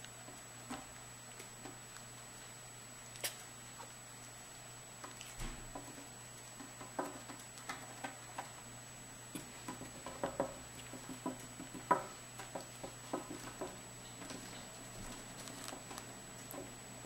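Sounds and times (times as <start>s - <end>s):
kitten paws tapping on table: 9.4s - 14.5s.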